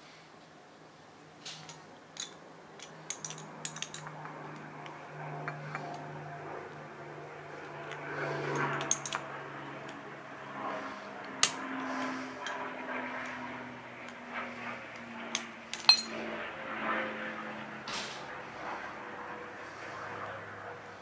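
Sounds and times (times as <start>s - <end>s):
small metal parts clinking: 1.6s - 4.6s, 8.5s - 9.2s, 15.3s - 16.2s.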